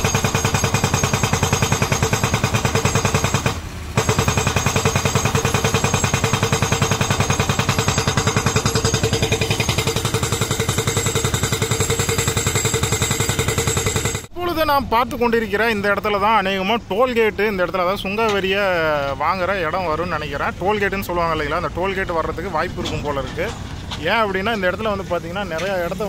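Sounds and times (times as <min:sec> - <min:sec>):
hydraulic rock breaker hammering: 0:00.0 - 0:14.3.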